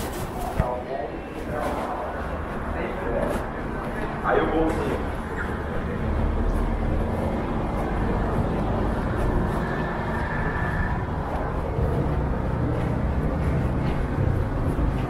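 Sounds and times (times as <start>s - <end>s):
road traffic on wet road: 2.0s - 15.0s.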